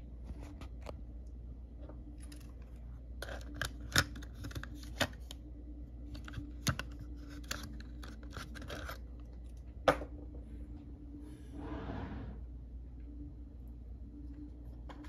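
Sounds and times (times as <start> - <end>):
faint steady hum: 0.0 - 15.0
cassette tape plastic clicks: 3.2 - 5.4, 6.2 - 9.4.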